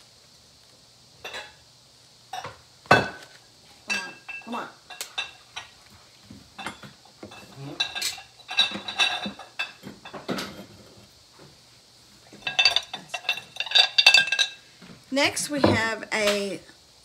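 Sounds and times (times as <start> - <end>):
ceramic and glass clinking: 1.2 - 1.6, 2.3 - 3.3, 3.9 - 5.7, 6.6 - 10.6, 12.4 - 14.6.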